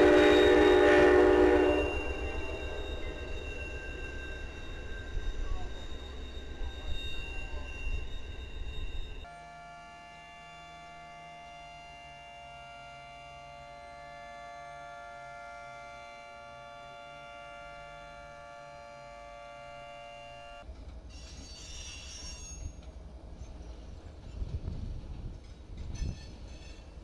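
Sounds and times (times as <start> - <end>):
train horn chord: 0.0 - 3.1, 9.2 - 20.6
diesel locomotive rumble: 0.0 - 21.1.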